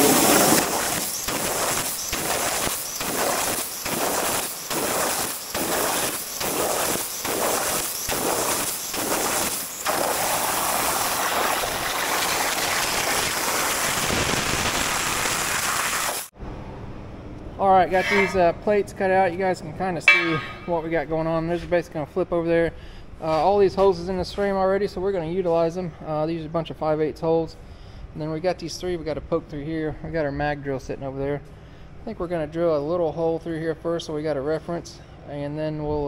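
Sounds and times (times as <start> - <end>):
plasma torch hissing: 0.0 - 16.3.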